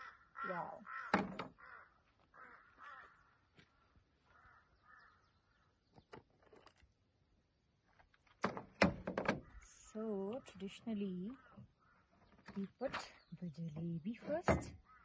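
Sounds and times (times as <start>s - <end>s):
crow cawing: 0.0s - 5.3s.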